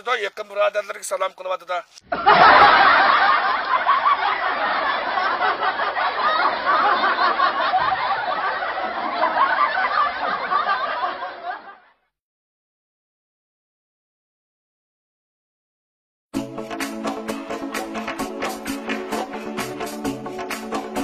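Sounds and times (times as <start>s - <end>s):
laugh track: 2.1s - 12.1s.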